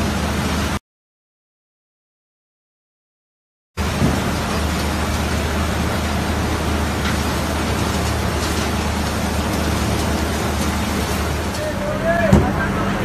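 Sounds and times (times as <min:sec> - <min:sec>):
machinery drone and motor hum: 0:00.0 - 0:00.8, 0:03.8 - 0:13.0
water washing over decks: 0:00.0 - 0:00.8, 0:03.8 - 0:13.0.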